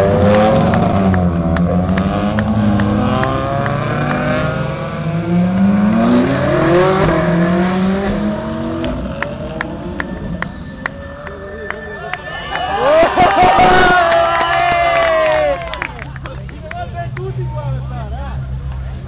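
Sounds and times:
race car engines revving: 0.0 - 19.0.

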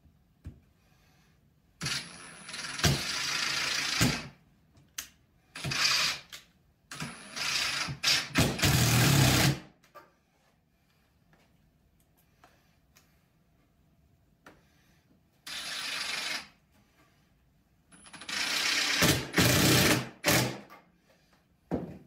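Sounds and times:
cordless drill driving screws into wood: 1.8 - 4.4, 5.6 - 9.7, 15.5 - 16.5, 18.1 - 20.8.

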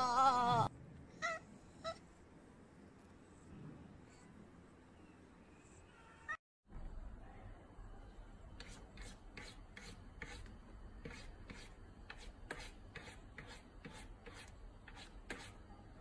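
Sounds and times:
cat paw scratching counter top: 11.1 - 15.5.

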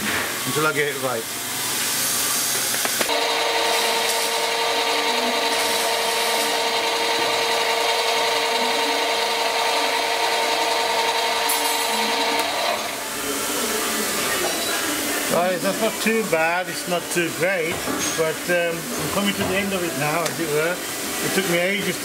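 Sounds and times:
metal lathe whining: 3.1 - 13.1.

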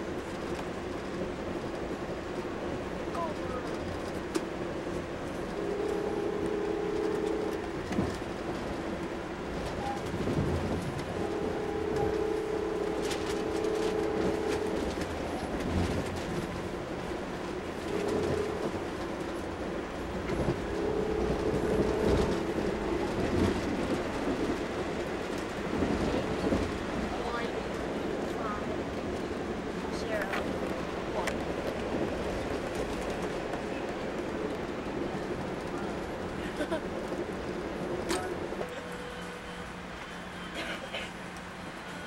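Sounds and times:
train running on rails: 0.0 - 42.0
locomotive horn: 5.5 - 8.0, 9.8 - 16.0, 17.8 - 19.0, 20.3 - 24.6, 38.6 - 42.0.

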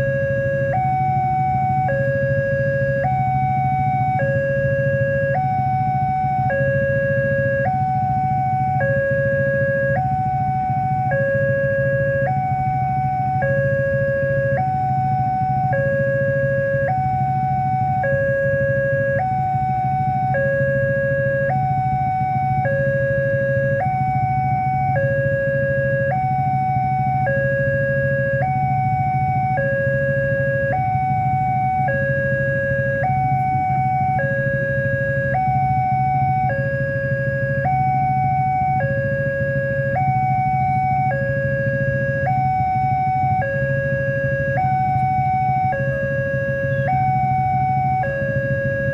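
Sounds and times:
level crossing two-tone alarm: 0.0 - 48.9.

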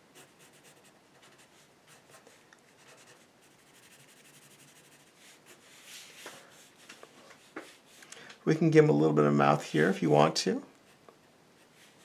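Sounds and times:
pencil scratching on paper: 0.1 - 8.0, 11.6 - 12.0.

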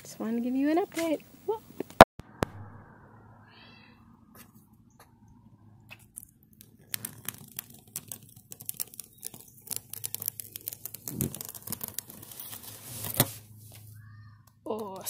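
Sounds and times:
tape peeling with crackling snaps: 5.9 - 14.0.

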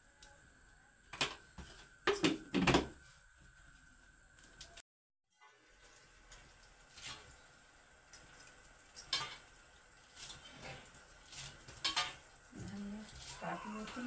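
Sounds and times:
leaves rustling and tearing: 12.8 - 14.0.

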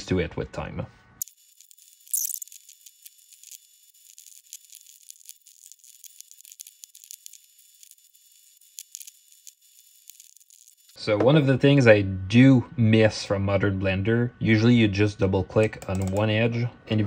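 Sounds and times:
rapid keyboard and mouse clicking: 15.6 - 16.4.

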